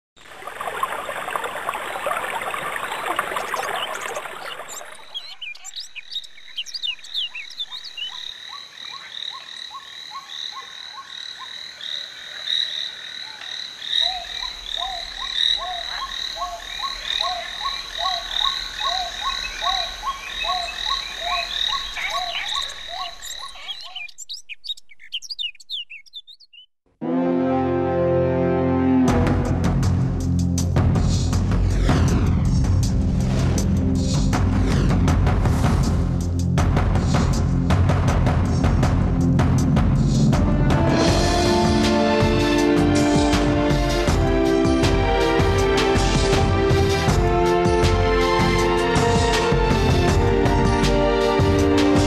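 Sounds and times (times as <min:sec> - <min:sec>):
frogs croaking: 0:00.2 - 0:26.6
high chirping calls: 0:03.8 - 0:10.3, 0:14.0 - 0:26.7.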